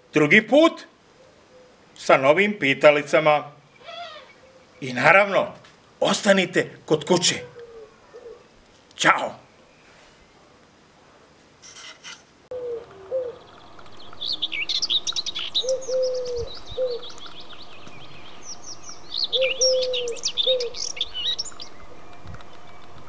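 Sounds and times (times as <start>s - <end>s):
songbirds chirping and trilling: 1.0s - 10.6s, 12.5s - 23.0s
dove cooing: 1.1s - 1.8s, 3.8s - 4.8s, 7.2s - 8.6s, 12.5s - 18.0s, 19.2s - 22.0s.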